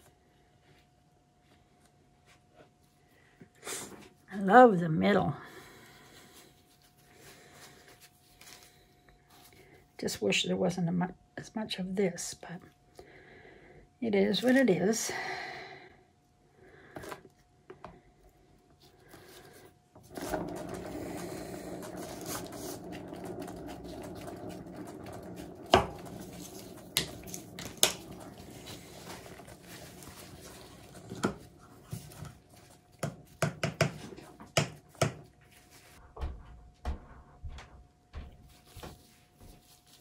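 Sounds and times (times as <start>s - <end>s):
turntable rolling rumble: 20.0s - 32.9s.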